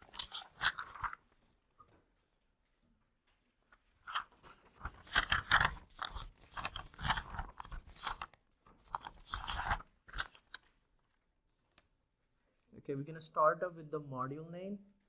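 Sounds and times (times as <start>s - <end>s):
paper rustling: 0.0s - 1.7s, 3.3s - 10.9s.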